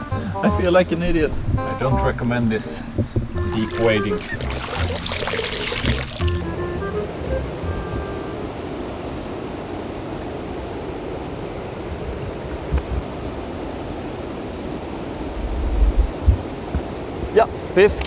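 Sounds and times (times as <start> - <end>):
low thumps: 1.0 - 6.6, 15.4 - 17.0
river rushing over rapids: 3.6 - 18.0.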